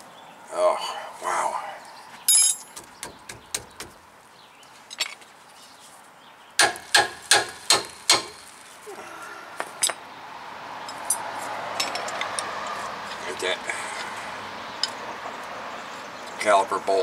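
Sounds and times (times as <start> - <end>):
hammer striking metal: 6.6 - 8.4.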